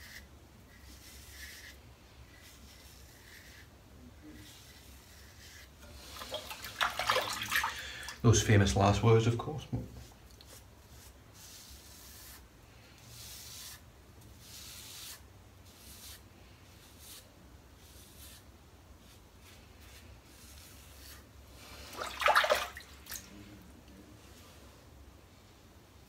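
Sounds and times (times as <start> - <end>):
razor scraping through lather: 0.0 - 3.7, 4.3 - 6.5.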